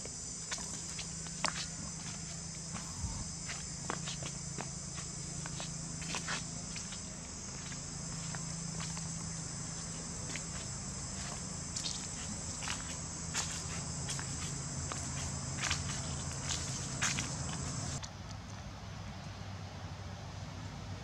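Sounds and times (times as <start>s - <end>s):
insect chorus: 0.0s - 18.1s
low steady hum: 0.0s - 21.0s
footsteps: 0.5s - 18.0s.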